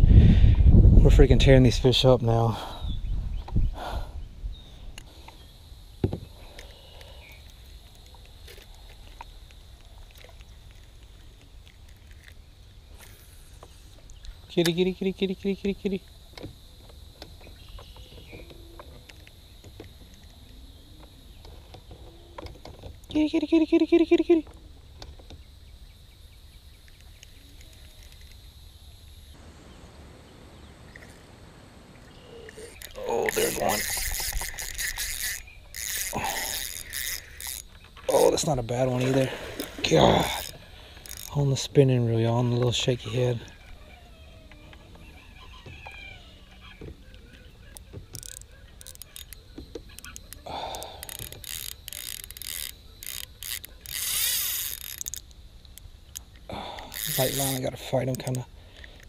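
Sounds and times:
fishing reel clicking and whirring: 27.0 - 28.5, 32.5 - 42.0, 42.6 - 59.0.

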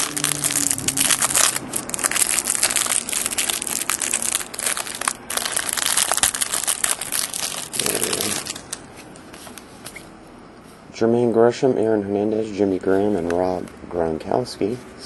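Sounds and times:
plastic wrapper crinkling: 0.0 - 9.6.

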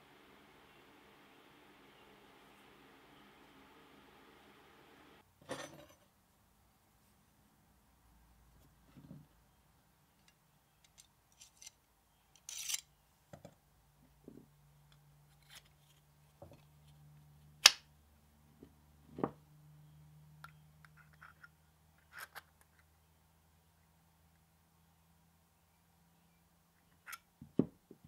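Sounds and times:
faint steady hum: 0.0 - 28.0.

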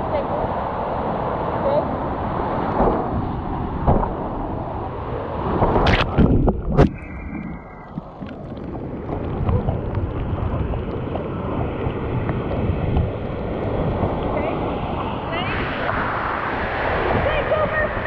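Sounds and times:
wind buffeting microphone: 0.0 - 18.0
whitewater rushing and splashing: 0.1 - 18.0.

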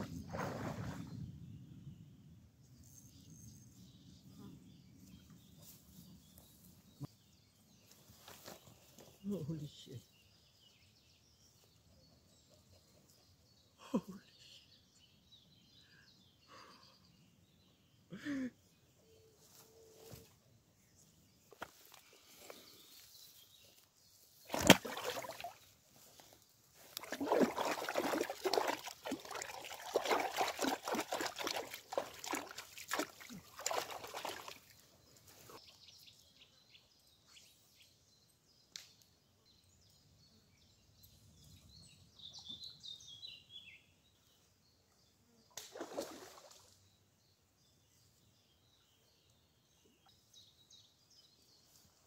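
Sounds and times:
fish splashing in pond water: 24.5 - 25.6, 26.9 - 34.8, 45.6 - 46.7.

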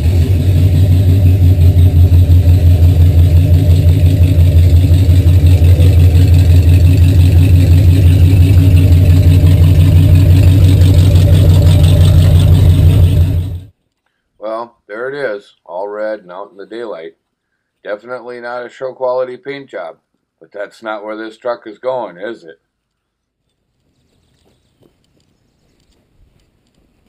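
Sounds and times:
truck engine rumbling: 0.0 - 13.8.

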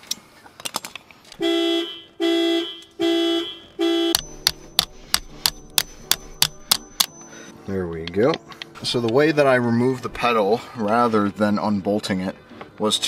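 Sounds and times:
hammer tapping metal punch: 4.1 - 7.2.

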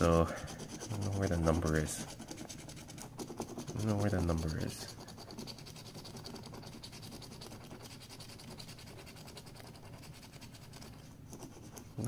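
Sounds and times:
coin scratching lottery ticket: 0.0 - 12.0.

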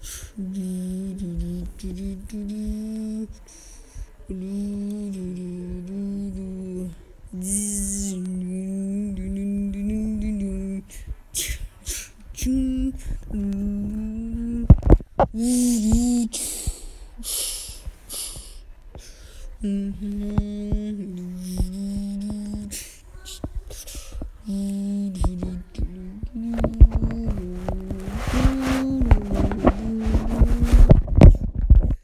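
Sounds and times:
boy humming: 0.0 - 18.6, 19.6 - 31.4.

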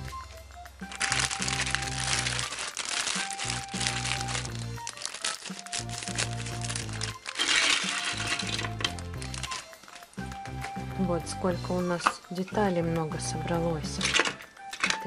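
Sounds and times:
background music: 0.0 - 15.0
plastic bag crinkling: 0.8 - 10.3.

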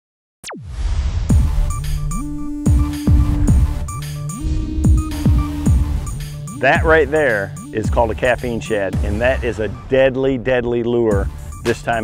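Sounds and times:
sliding synth bass line: 1.3 - 9.8
heavy kick drum: 2.6 - 7.3.

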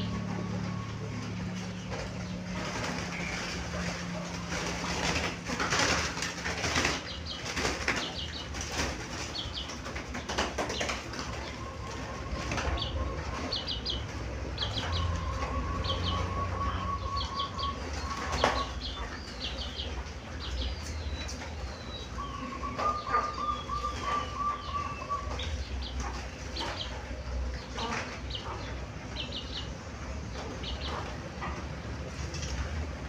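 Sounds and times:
small birds chirping: 0.0 - 33.0
dove cooing: 11.1 - 18.8, 22.1 - 25.7.

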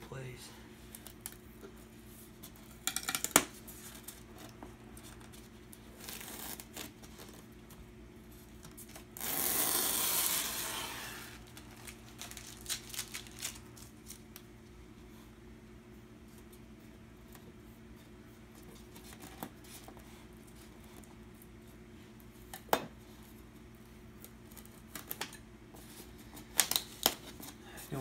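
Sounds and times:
knife cutting packing tape: 8.9 - 13.6
tearing scrape: 9.2 - 11.4.

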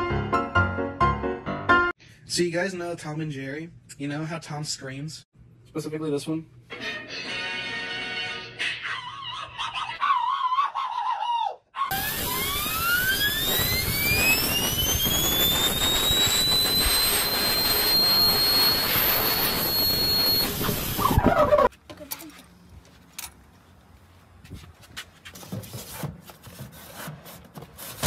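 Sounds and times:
blow gun hissing: 11.9 - 21.7
spinning ball bearing whine: 11.9 - 21.7.

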